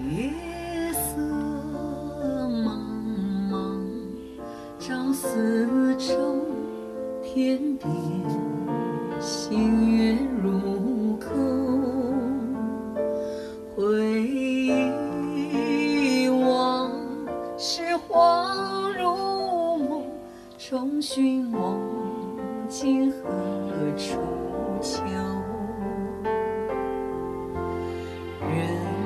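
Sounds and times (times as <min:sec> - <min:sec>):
woman singing with vibrato: 0:00.0 - 0:12.8, 0:13.8 - 0:26.4, 0:27.8 - 0:29.0
piano accompaniment: 0:00.0 - 0:29.0.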